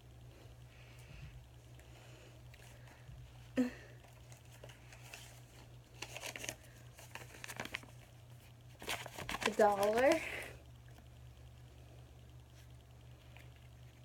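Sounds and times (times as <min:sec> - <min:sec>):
steady low hum: 0:00.0 - 0:14.0
paper rustling and crinkling: 0:04.0 - 0:10.5.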